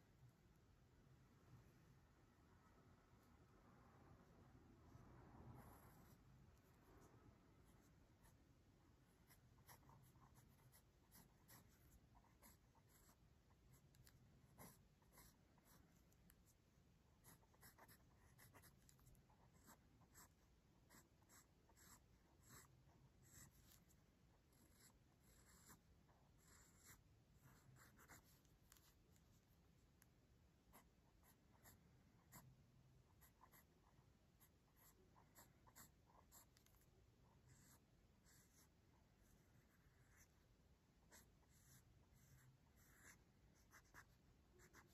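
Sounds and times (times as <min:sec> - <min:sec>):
pencil scratching on paper: 0:05.5 - 0:07.0, 0:09.1 - 0:16.6, 0:17.2 - 0:29.6, 0:30.7 - 0:32.5, 0:33.1 - 0:40.4, 0:41.0 - 0:44.9.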